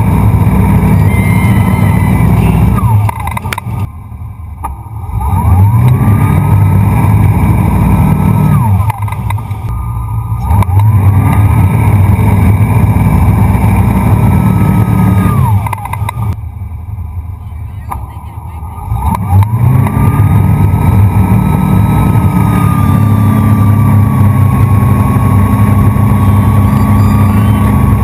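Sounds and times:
boat engine throttling: 0:00.0 - 0:28.0.

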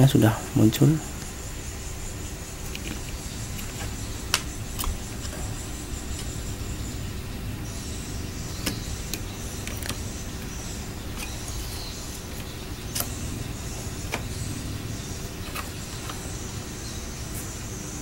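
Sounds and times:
low background hum: 0:00.0 - 0:18.0
test probes clicking and tapping: 0:07.8 - 0:16.4.

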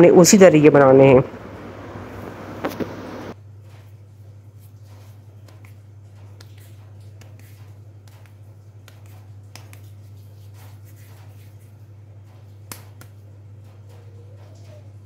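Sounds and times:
steady low hum: 0:00.0 - 0:15.0
hands rolling dough: 0:03.6 - 0:15.0.

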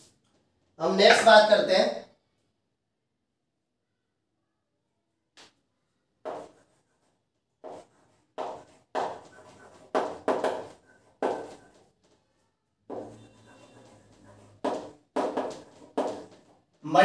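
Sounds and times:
writing on a board: 0:06.2 - 0:12.3, 0:12.9 - 0:16.8.

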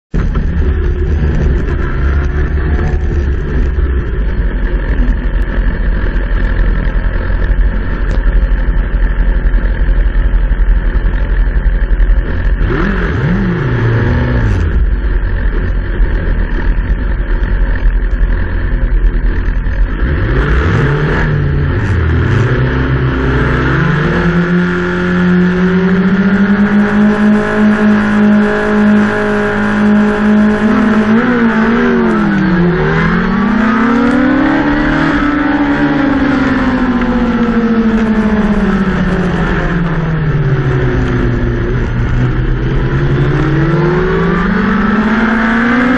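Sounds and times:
racing motorcycle engines revving: 0:00.2 - 0:45.9.

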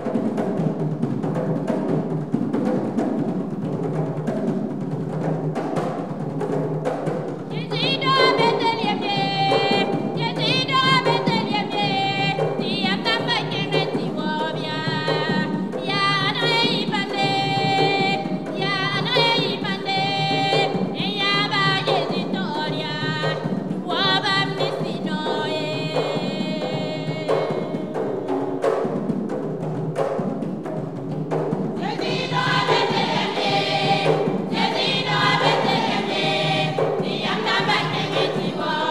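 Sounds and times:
drums: 0:00.0 - 0:07.5, 0:28.0 - 0:38.8
women's choir singing gospel: 0:07.5 - 0:28.4, 0:31.8 - 0:38.9.

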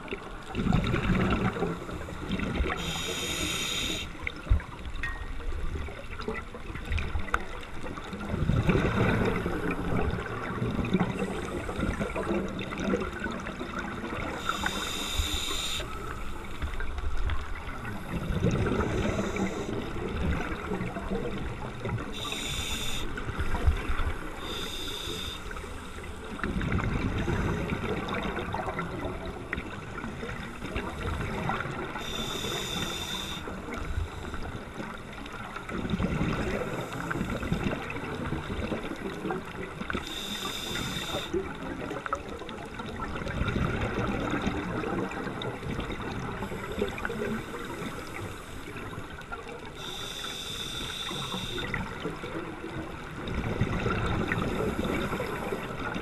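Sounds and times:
exhaled bubbles rumbling: 0:00.0 - 0:03.2, 0:04.2 - 0:22.4, 0:25.6 - 0:32.0, 0:33.5 - 0:40.0, 0:41.1 - 0:49.7, 0:51.2 - 0:56.0
regulator inhale hiss: 0:01.8 - 0:04.3, 0:14.3 - 0:16.7, 0:18.8 - 0:19.9, 0:22.1 - 0:23.4, 0:24.3 - 0:26.2, 0:32.0 - 0:33.6, 0:36.6 - 0:37.6, 0:40.0 - 0:41.4, 0:46.4 - 0:48.9, 0:49.8 - 0:51.8, 0:54.4 - 0:55.9.

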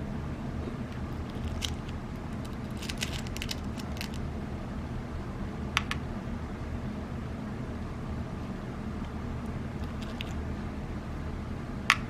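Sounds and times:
low hum: 0:00.0 - 0:12.0
metal pellets clicking: 0:00.9 - 0:04.2, 0:09.8 - 0:10.4.

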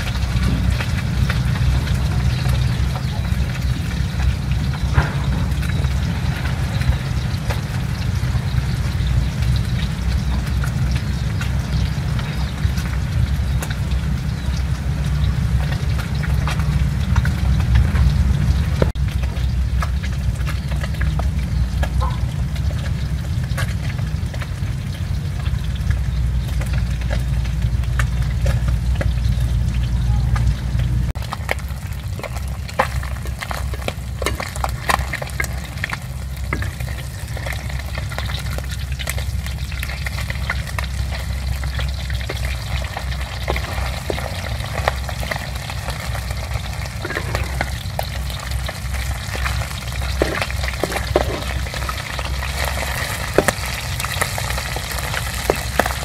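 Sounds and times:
fish sizzling in hot oil: 0:00.0 - 0:56.0
low rumble: 0:00.0 - 0:56.0
oil crackling pops: 0:31.1 - 0:56.0.

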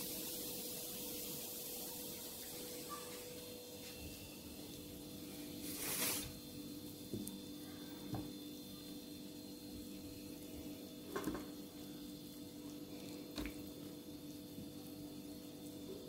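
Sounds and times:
brief rustling hiss: 0:05.6 - 0:06.4.

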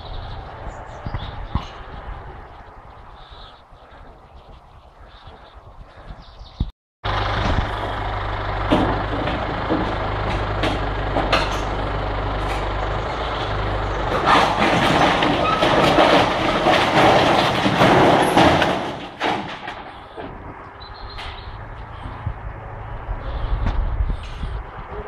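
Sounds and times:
tractor engine running: 0:07.0 - 0:25.0
metal roof sheeting crashing: 0:14.0 - 0:20.2.

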